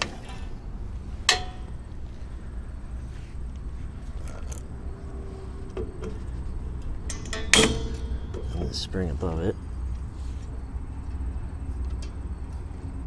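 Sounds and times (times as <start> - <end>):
low rumble: 0.0 - 13.0
metal parts clinking: 5.8 - 8.9.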